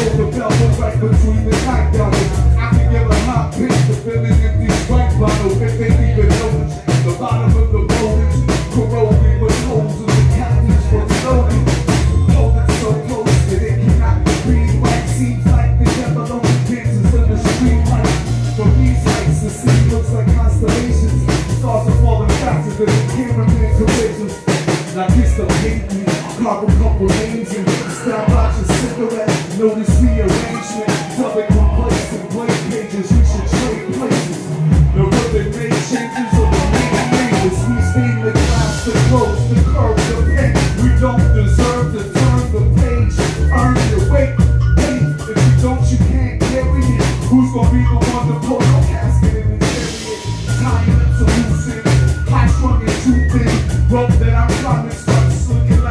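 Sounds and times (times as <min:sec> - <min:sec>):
drum kit kick and snare: 0:00.0 - 0:37.7, 0:38.4 - 0:55.9
deep bass line: 0:00.0 - 0:55.9
live band playing instrumental: 0:00.0 - 0:55.9
held higher notes: 0:16.9 - 0:55.9.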